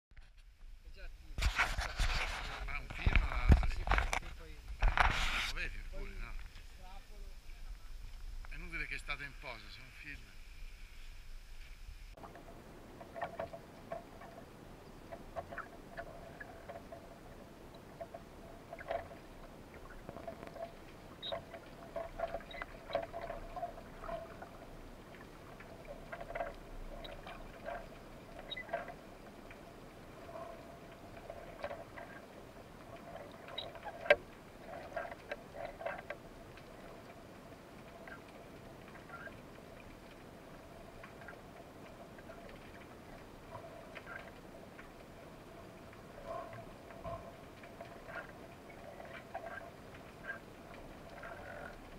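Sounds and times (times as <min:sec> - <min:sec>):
underwater clicks and crackles: 0:00.1 - 0:51.9
faint underwater murmur: 0:12.2 - 0:37.3, 0:37.9 - 0:39.5, 0:40.1 - 0:44.5, 0:45.4 - 0:51.9.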